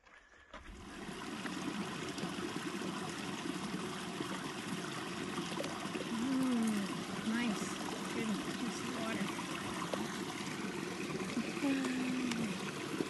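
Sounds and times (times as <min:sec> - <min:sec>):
creek trickling: 0:00.6 - 0:13.0.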